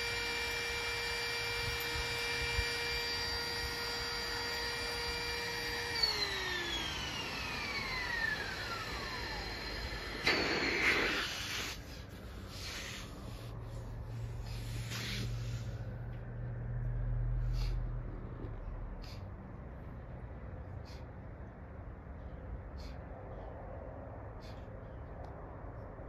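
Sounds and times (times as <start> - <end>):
electric air pump whining: 0.0 - 16.1
short rush of noise: 10.2 - 15.9.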